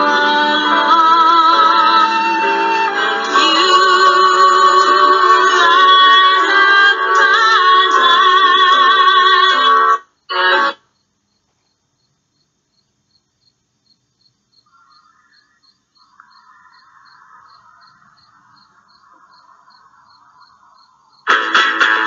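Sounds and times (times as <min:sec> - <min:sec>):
crickets chirping: 0:08.0 - 0:21.3
loud music with strummed guitar: 0:21.3 - 0:22.0.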